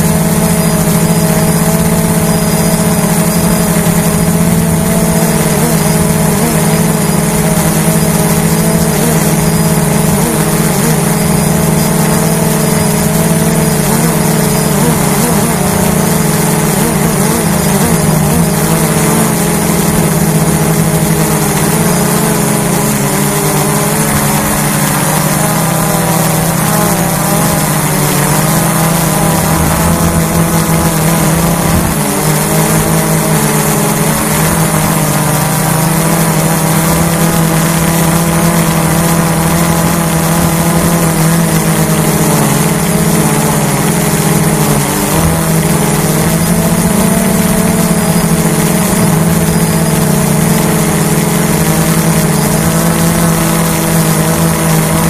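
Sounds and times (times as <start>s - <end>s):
quadcopter motors buzzing: 0.0s - 55.0s.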